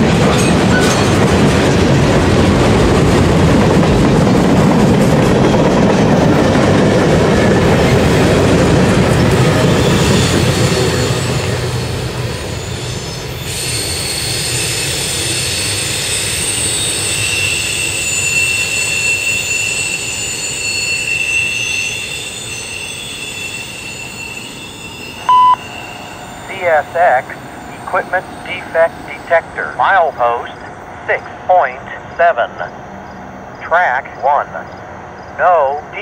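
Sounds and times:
train wheels rumbling on rails: 0.0 - 33.6
high squealing tones: 15.5 - 29.2.

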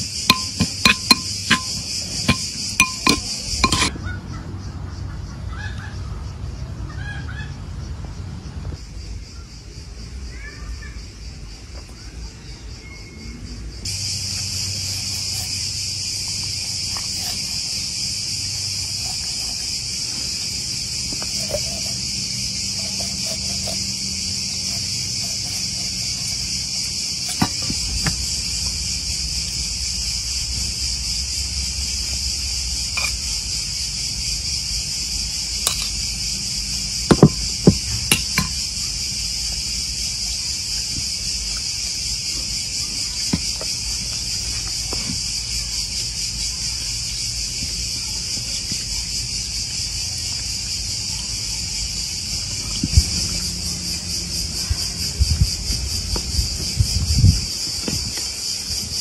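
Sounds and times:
crickets chirping: 0.0 - 59.0
sharp knocks and clicks: 0.3 - 3.9, 37.1 - 38.6.

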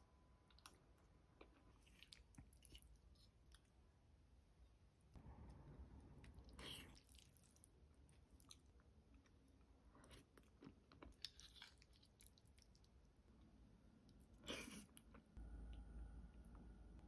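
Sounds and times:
chewing: 1.4 - 3.8, 6.4 - 9.4, 10.0 - 13.0.

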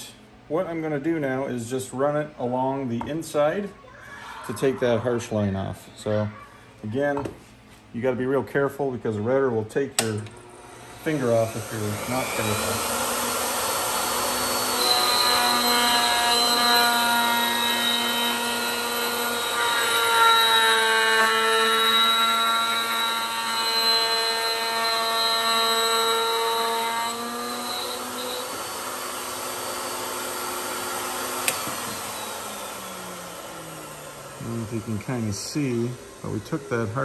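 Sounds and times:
router motor whining: 10.4 - 37.0
bit cutting aluminum: 10.8 - 36.9.

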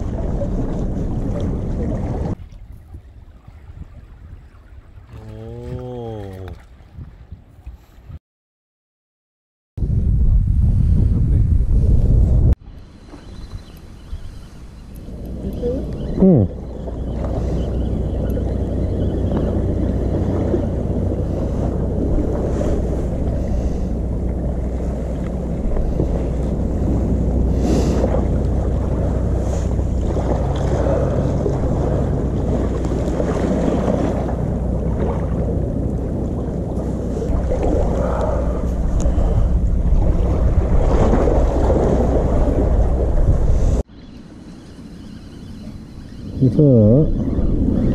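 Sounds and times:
sea washing around concrete blocks: 0.0 - 2.7, 18.4 - 43.9
wind rumbling on microphone: 0.0 - 8.2, 9.8 - 44.3, 45.0 - 47.9.

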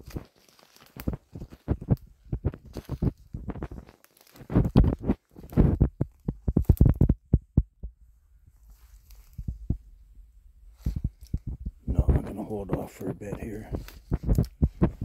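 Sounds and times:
footsteps on forest floor: 0.0 - 5.8, 8.6 - 9.6
handheld camera thumps: 4.5 - 8.0, 13.7 - 15.0.

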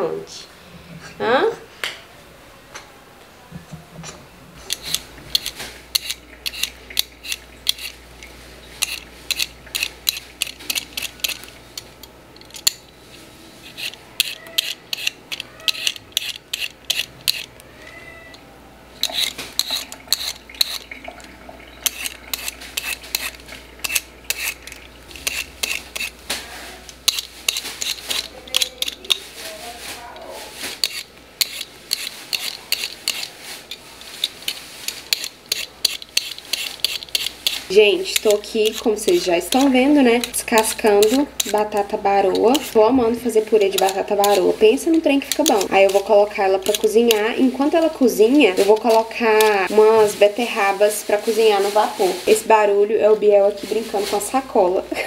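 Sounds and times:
metal blade scraping peel: 4.6 - 8.0, 8.7 - 17.6, 19.0 - 20.9, 21.8 - 29.8, 30.4 - 49.8.

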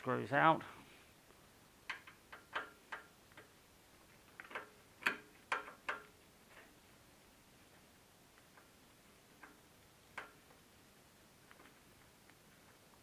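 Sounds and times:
allen key clicking on screws: 1.9 - 3.5, 4.4 - 6.2.

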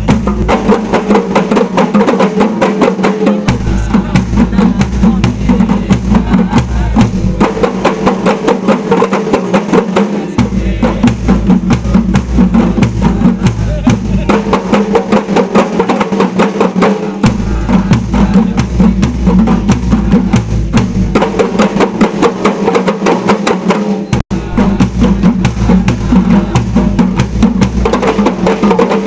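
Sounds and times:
frame drums beating fast rhythm: 0.0 - 29.0
large barrel drum: 0.0 - 29.0.

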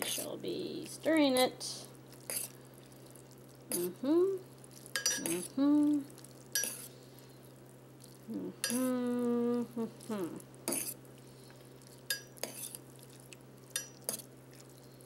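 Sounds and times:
fork stirring noodles in pot: 0.0 - 0.4, 2.0 - 15.0
fork clinking against pot: 5.0 - 5.4, 6.6 - 6.8, 12.1 - 12.8, 13.7 - 14.2.

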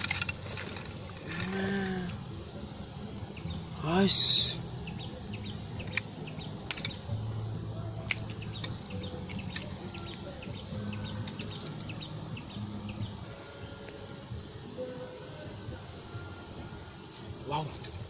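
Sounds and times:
insects and birds trilling: 0.0 - 13.8.

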